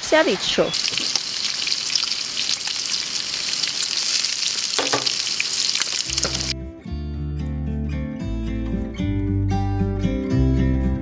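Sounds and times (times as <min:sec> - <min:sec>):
bacon sizzling in a frying pan: 0:00.7 - 0:06.6.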